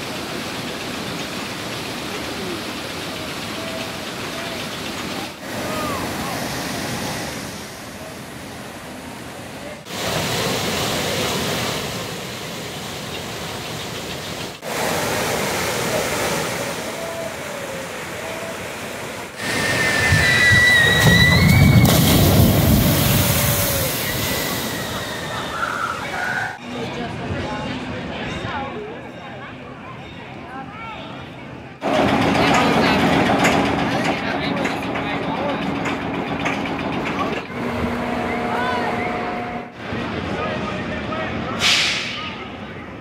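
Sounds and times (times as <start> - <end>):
water rushing down a chute: 0.0 - 13.8, 14.5 - 26.6, 31.8 - 40.0
boat heavy splash: 0.0 - 26.6, 31.8 - 42.4.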